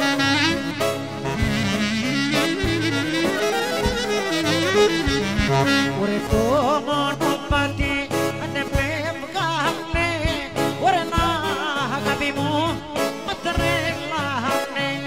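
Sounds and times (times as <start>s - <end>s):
folk clarinet melody: 0.0s - 6.9s
band drumbeat and bass: 0.0s - 15.0s.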